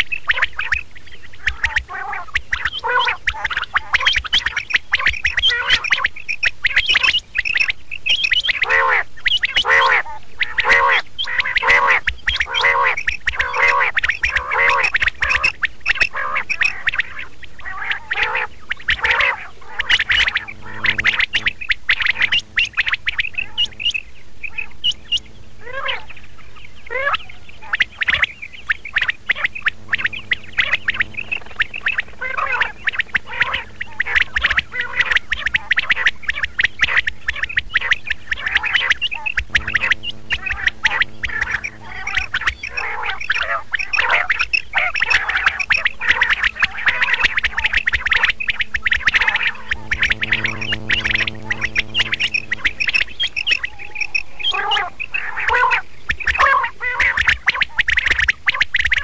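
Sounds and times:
quail calling: 0.0s - 59.0s.

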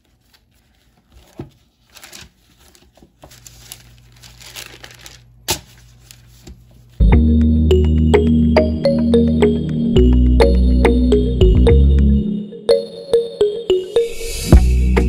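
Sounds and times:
plastic gloves and paper crinkling: 0.0s - 7.0s.

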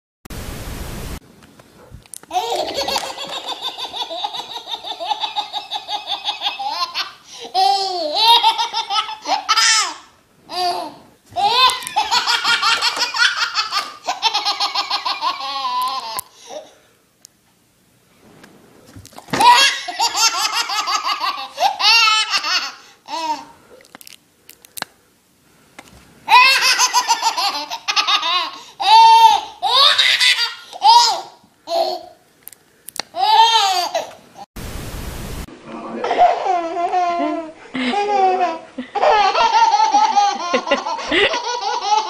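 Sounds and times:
baby laughing hysterically: 2.3s - 16.6s, 19.3s - 23.5s, 26.3s - 32.1s, 36.0s - 42.0s.

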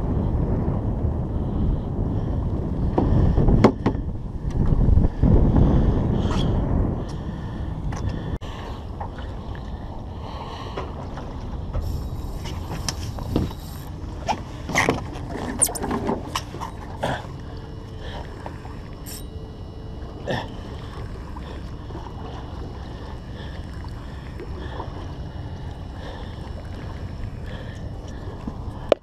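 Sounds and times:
wind on microphone: 0.0s - 10.0s, 11.0s - 16.6s.

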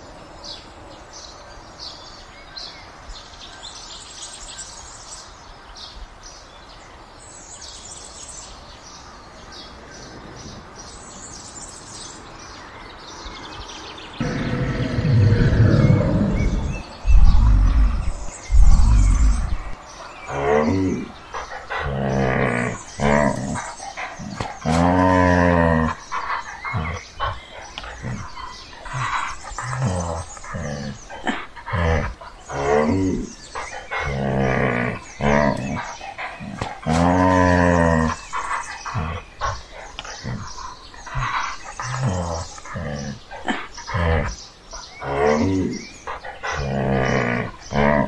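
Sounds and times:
bears growling and roaring: 14.1s - 48.0s.

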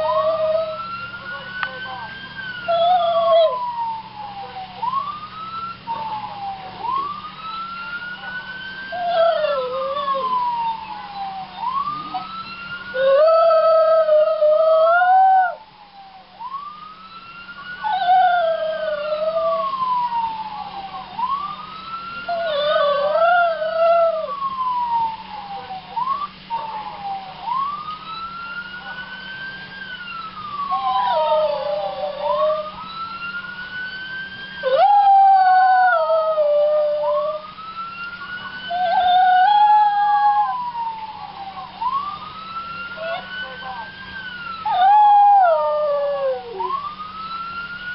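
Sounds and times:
dog howling: 0.0s - 2.1s, 2.7s - 4.6s, 8.2s - 15.6s, 17.8s - 21.2s, 22.2s - 27.6s, 30.2s - 33.0s, 34.6s - 37.4s, 38.7s - 41.7s, 43.0s - 43.9s, 44.6s - 46.8s
police siren wailing: 0.0s - 47.9s.

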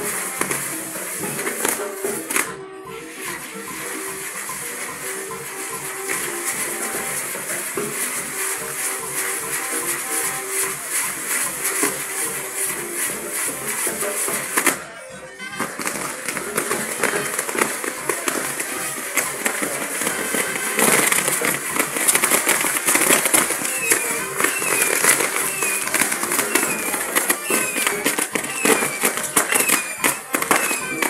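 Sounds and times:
hissing spark fountains: 0.0s - 14.8s, 15.6s - 31.0s
firecrackers crackling and popping: 0.0s - 31.0s
short falling whistle: 26.5s - 31.0s.

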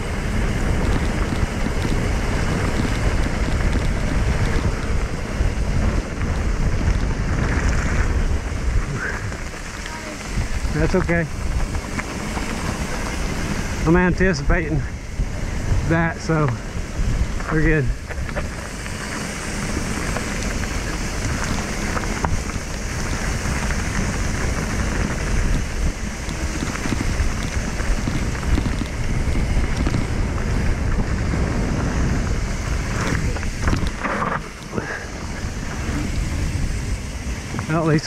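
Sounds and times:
tyres rumbling on dirt: 0.0s - 38.0s
wind rushing over microphone: 0.0s - 38.0s
bike knocking over bumps: 17.4s - 37.6s.

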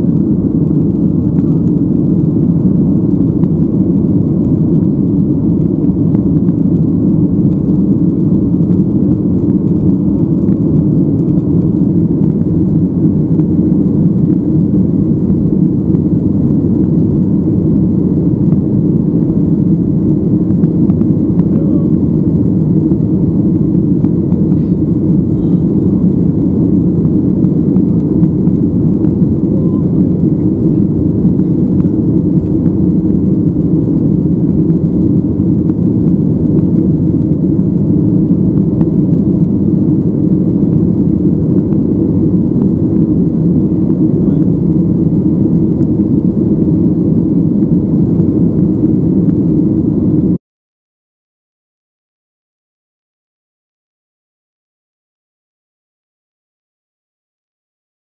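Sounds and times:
airplane cabin engine drone: 0.0s - 50.4s.

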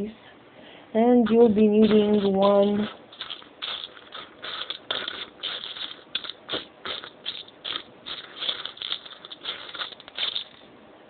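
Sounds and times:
plastic bricks clicking: 1.8s - 10.6s.

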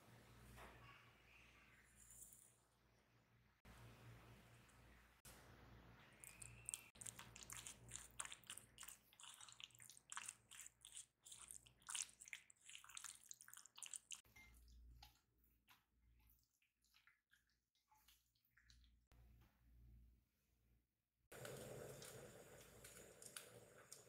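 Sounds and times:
wet squelches of stirred chicken: 5.3s - 19.2s.

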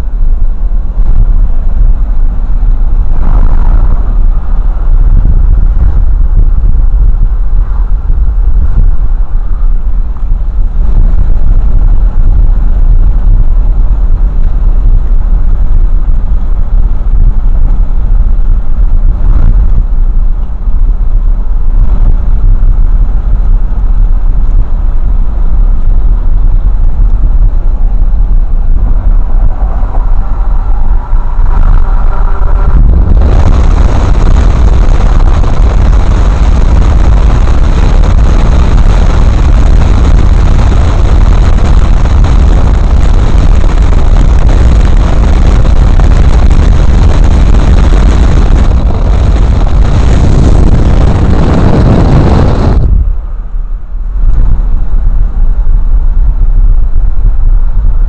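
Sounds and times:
car interior road rumble: 0.0s - 58.0s
wind and road noise hiss: 0.0s - 58.0s.

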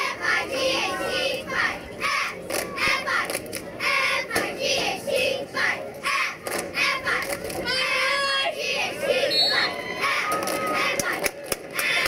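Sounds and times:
crowd shouting and cheering: 6.0s - 12.0s.

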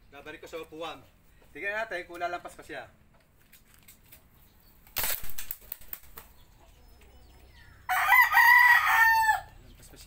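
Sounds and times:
air rifle shot: 5.0s - 5.5s.

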